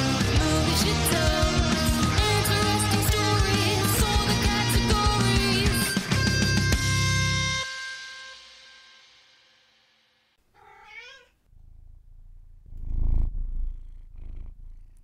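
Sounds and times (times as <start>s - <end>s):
music: 0.0s - 10.4s
cat meowing: 10.5s - 11.4s
cat purring: 10.5s - 15.0s.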